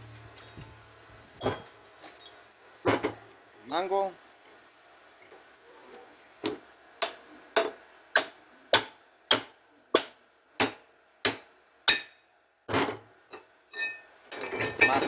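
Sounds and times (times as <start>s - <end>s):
hammer striking metal: 7.0s - 12.2s.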